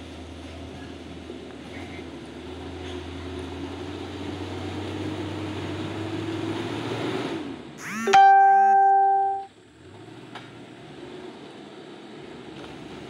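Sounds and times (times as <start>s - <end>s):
truck engine running under load: 0.0s - 8.0s.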